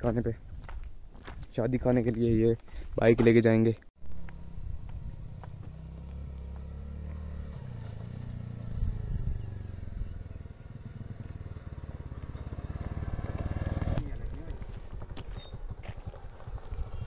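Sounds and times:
small motorcycle engine: 4.0s - 17.0s.

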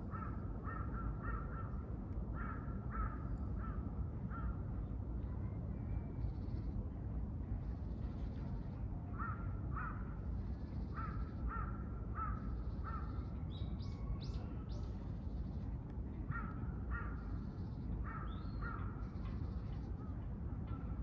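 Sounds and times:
crow cawing: 11.0s - 13.1s.

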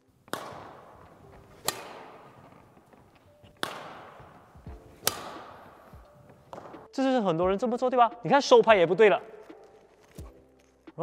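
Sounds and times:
racket striking shuttlecock: 0.0s - 6.9s.

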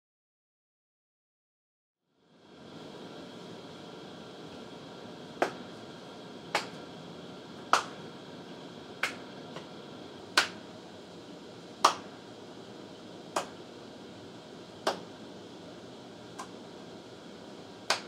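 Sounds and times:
background hiss: 2.2s - 18.0s
person clapping slowly: 5.4s - 5.6s, 6.5s - 6.8s, 7.7s - 8.0s, 9.0s - 9.7s, 10.4s - 10.6s, 11.8s - 12.1s, 13.3s - 13.6s, 14.8s - 15.1s, 16.4s - 16.6s.

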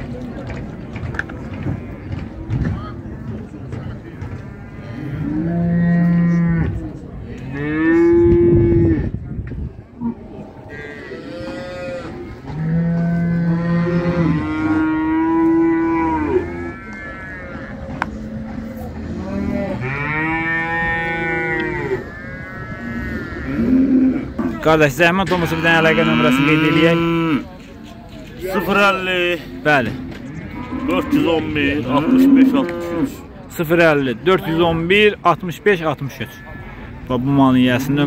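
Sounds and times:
cattle mooing: 4.7s - 6.8s, 10.0s - 24.6s, 25.4s - 27.5s, 29.8s - 33.2s.

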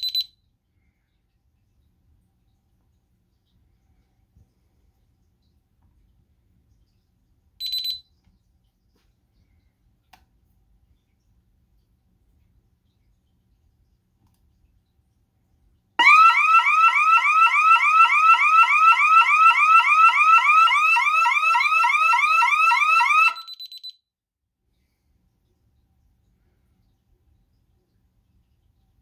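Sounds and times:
alarm siren yelping: 16.0s - 23.7s.

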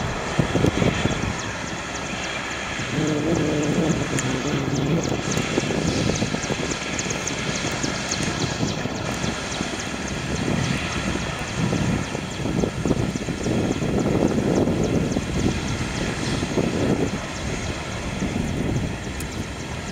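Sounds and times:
jet engines at takeoff: 0.0s - 19.9s
low droning tone: 2.8s - 6.4s.

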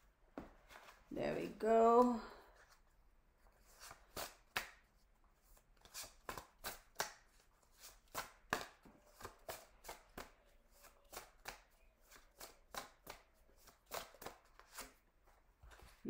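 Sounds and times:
cards being shuffled: 3.5s - 15.0s.

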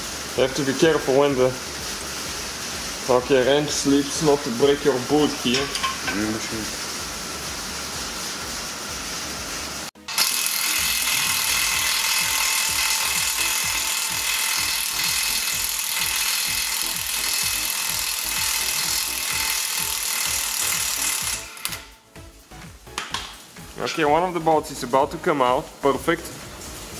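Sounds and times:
cordless ratchet running: 10.1s - 21.9s.

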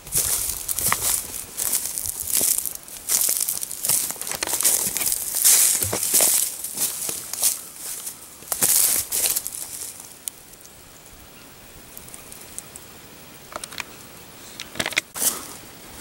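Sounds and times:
footsteps through grass: 0.0s - 10.6s
scattered clicks: 12.0s - 14.0s, 14.6s - 15.2s.

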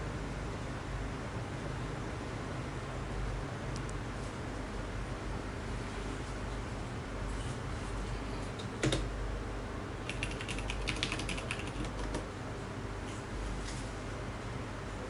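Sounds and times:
keyboard typing: 10.0s - 12.3s.

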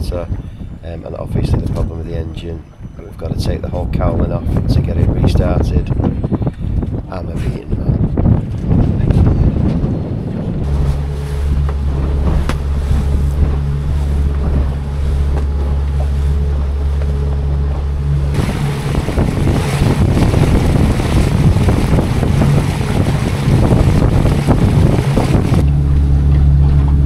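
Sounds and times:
rush of wind and water: 0.0s - 27.0s
outboard motor humming: 5.6s - 27.0s.

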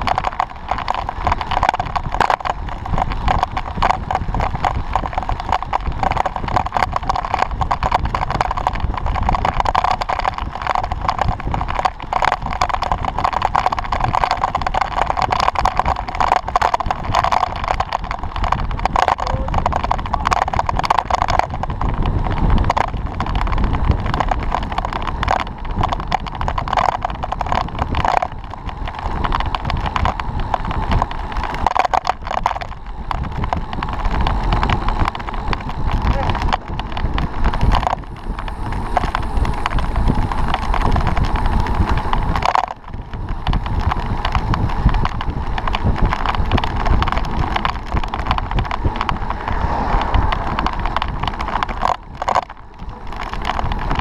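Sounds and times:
bike clicks and rattles: 0.0s - 54.0s
wind rushing: 10.3s - 53.0s.

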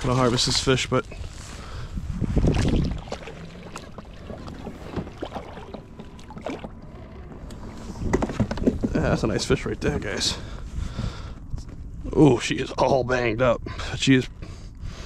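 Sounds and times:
wind on microphone: 0.0s - 12.2s
water sloshing around kayak: 1.2s - 9.4s
small knocks from hull: 2.5s - 6.8s, 8.0s - 9.2s.

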